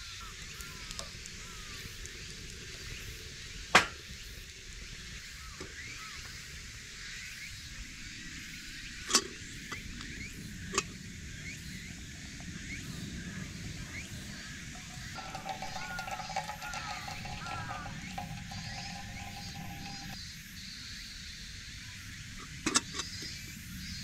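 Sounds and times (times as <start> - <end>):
fire popping: 14.7 - 20.2
metal tongs clacking: 14.8 - 20.2.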